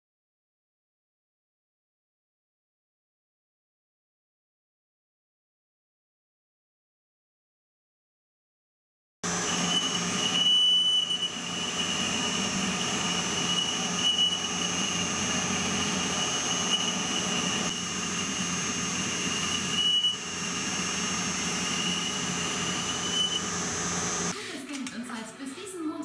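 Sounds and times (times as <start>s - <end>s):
high-pitched cutting squeal: 9.3s - 24.3s
metal lathe spindle running: 9.3s - 24.3s.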